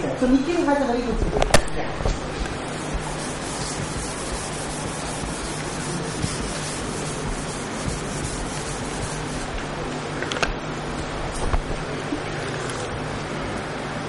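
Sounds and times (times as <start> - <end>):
duster scrubbing whiteboard: 2.0 - 10.0.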